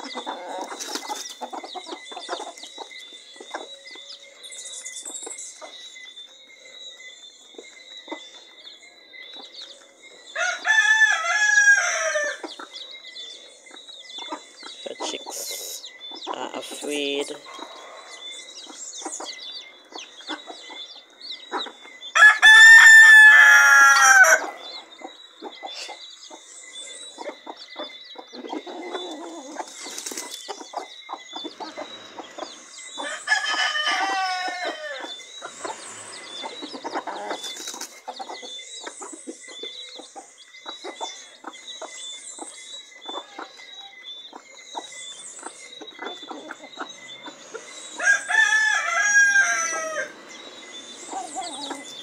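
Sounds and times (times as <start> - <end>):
chickens clucking: 0.0 - 52.0
rooster crowing: 10.4 - 12.4, 22.2 - 24.8, 33.0 - 35.2, 48.0 - 50.2
faint high peeps: 24.7 - 48.0.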